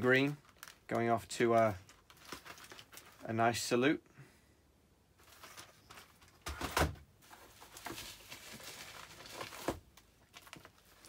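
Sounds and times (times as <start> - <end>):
bubble wrap crinkling: 0.0 - 3.3, 7.2 - 11.0.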